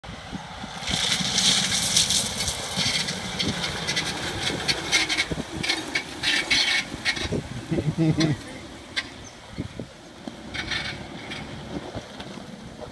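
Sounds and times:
van engine pulling uphill: 0:00.0 - 0:12.9.

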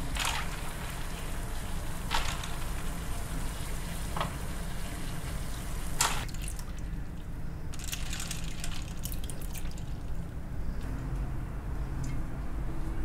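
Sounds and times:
steady low hum: 0:00.0 - 0:13.0
ice cubes clinking: 0:02.1 - 0:02.7, 0:07.7 - 0:10.1.

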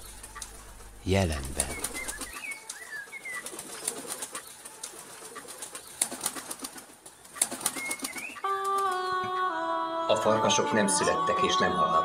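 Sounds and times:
bird chirps and clicks: 0:00.0 - 0:00.6, 0:01.4 - 0:06.3, 0:07.3 - 0:08.9
whistled bird call: 0:01.6 - 0:03.4.

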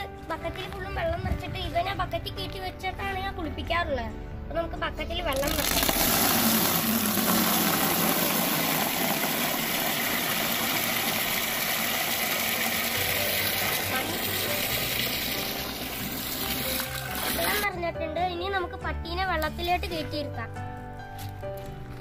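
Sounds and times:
tap water filling bucket: 0:05.3 - 0:17.7.

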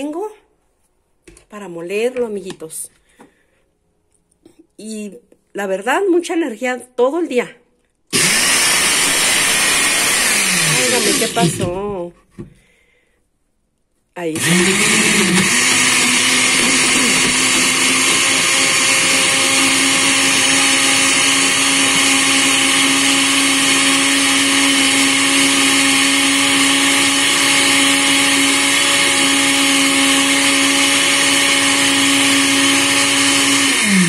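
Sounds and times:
blender motor whining: 0:08.1 - 0:11.9, 0:14.3 - 0:34.0.

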